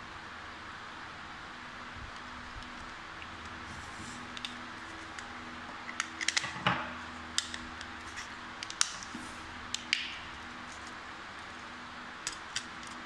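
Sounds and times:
steady hiss: 0:07.0 - 0:13.0.

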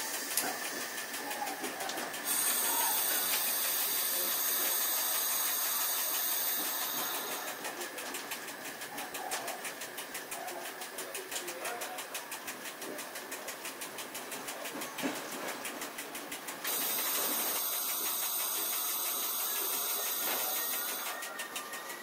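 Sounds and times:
train running noise with ticking: 0:00.0 - 0:22.0
steady hiss with high whines: 0:02.3 - 0:07.6, 0:16.7 - 0:21.2.

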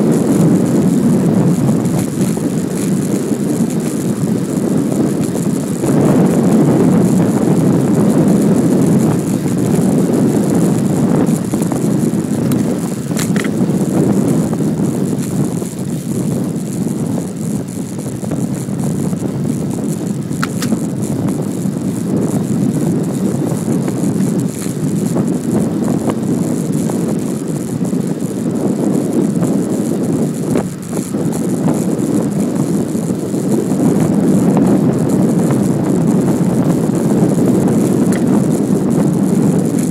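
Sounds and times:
bicycle tyre noise: 0:00.0 - 0:39.9
wind on microphone: 0:00.0 - 0:39.9.

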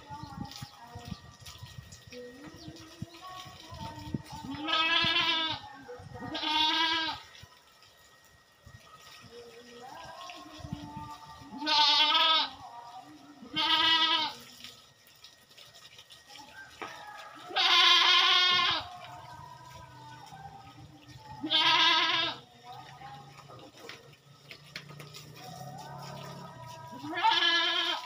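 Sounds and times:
goat bleating: 0:04.4 - 0:05.7, 0:06.3 - 0:07.3, 0:11.5 - 0:12.6, 0:13.4 - 0:14.5, 0:17.5 - 0:19.0, 0:21.4 - 0:22.4, 0:26.8 - 0:28.0.

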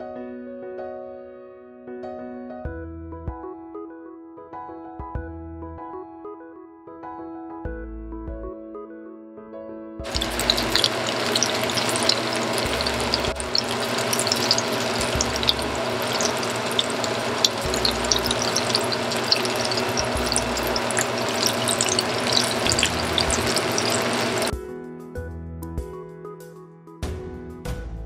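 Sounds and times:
fritters deep-frying with crackling pops: 0:10.1 - 0:24.5.

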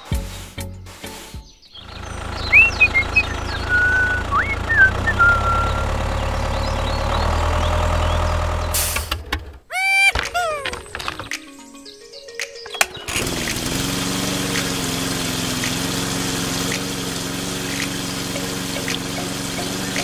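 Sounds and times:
birds chirping: 0:01.1 - 0:08.9, 0:09.7 - 0:20.0
rising tone: 0:01.8 - 0:07.7
tractor engine humming: 0:01.8 - 0:09.6, 0:12.6 - 0:20.0.

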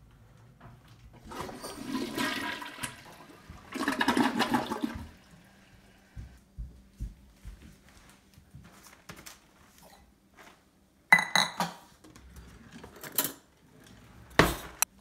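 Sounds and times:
toilet flushing: 0:01.1 - 0:06.4.

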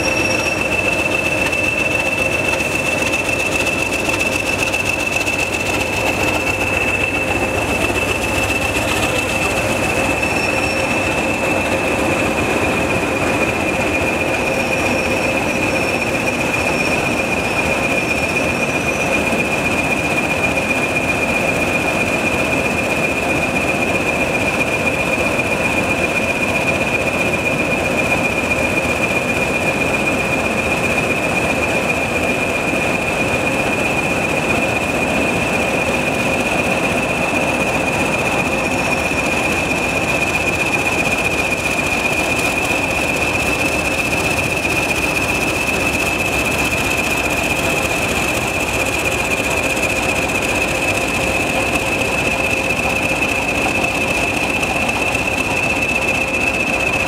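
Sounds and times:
turbocharger whistle: 0:00.0 - 0:21.8
diesel locomotive engine: 0:00.0 - 0:57.0.

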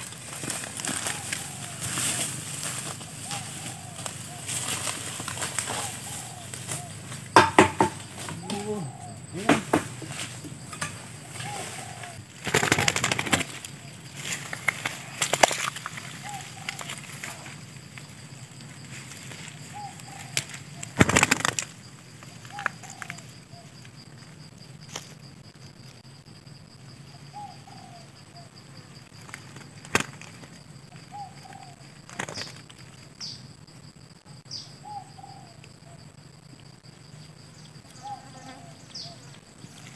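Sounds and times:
wings flapping: 0:00.0 - 0:06.8, 0:11.3 - 0:17.5, 0:20.4 - 0:21.8, 0:29.2 - 0:30.6.

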